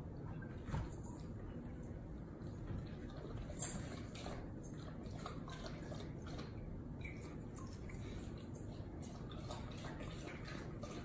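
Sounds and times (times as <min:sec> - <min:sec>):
dog lapping water: 0:02.2 - 0:11.0.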